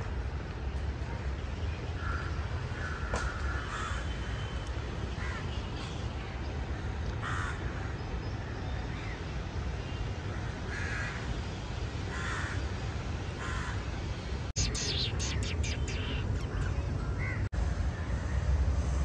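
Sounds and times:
crows cawing: 2.0s - 4.1s, 7.2s - 7.7s, 10.7s - 11.2s, 12.1s - 12.6s.

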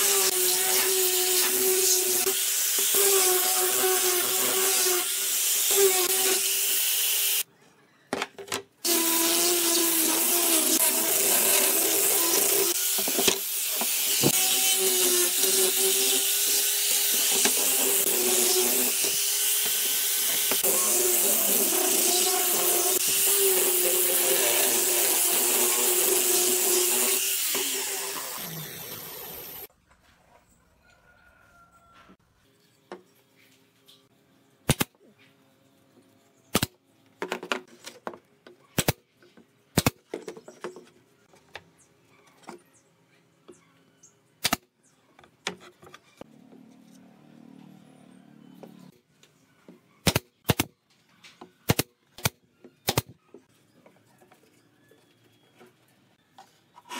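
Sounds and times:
power sander on wood: 0.0s - 7.5s, 8.9s - 29.7s
brad nailer firing: 50.0s - 50.7s, 51.6s - 53.1s.

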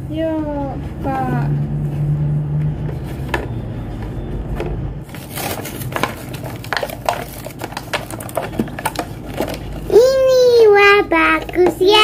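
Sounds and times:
plastic packaging crackling: 5.1s - 10.2s.

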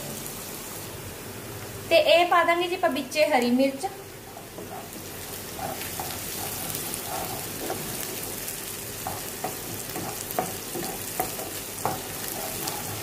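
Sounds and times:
onions sizzling in hot oil: 0.0s - 13.0s
wooden spatula scraping a pan: 4.2s - 8.3s, 9.0s - 13.0s.

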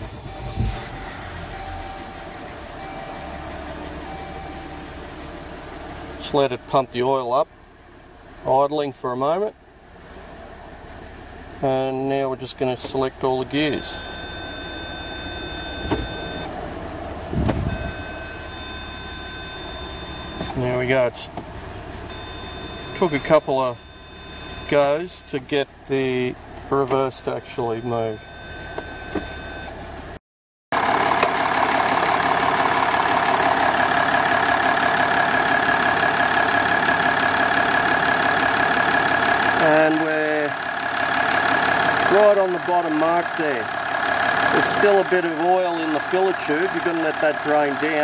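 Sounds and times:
high electronic warning tone: 0.0s - 5.0s, 13.6s - 16.5s, 17.6s - 20.7s, 22.1s - 25.5s, 27.2s - 29.7s
diesel engine idling: 0.0s - 30.2s, 30.8s - 48.0s
heavy thump: 17.4s - 17.8s.

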